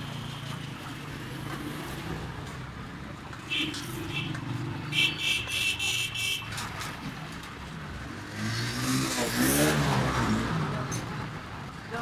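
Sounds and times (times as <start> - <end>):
road traffic: 0.0 - 12.0.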